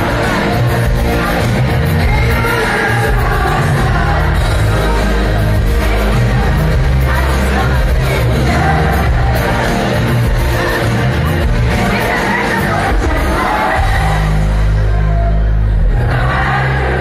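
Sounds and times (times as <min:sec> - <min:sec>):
man singing: 0:00.0 - 0:10.2
live pop-rock band: 0:00.0 - 0:17.0.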